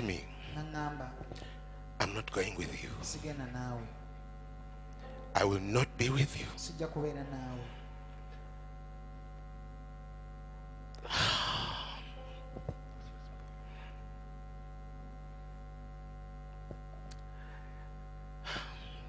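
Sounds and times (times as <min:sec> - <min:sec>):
steady electrical hum: 0:00.0 - 0:19.0
man sighing: 0:11.0 - 0:12.2.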